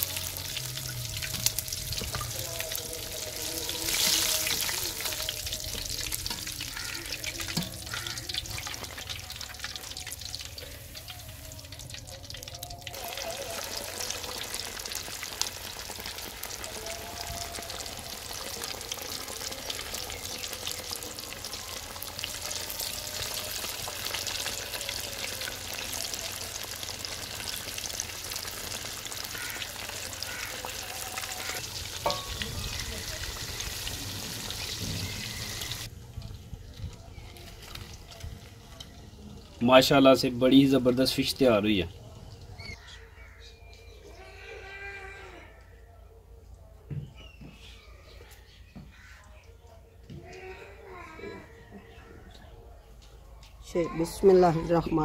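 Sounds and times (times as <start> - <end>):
fish deep frying in hot oil: 0.0 - 43.0.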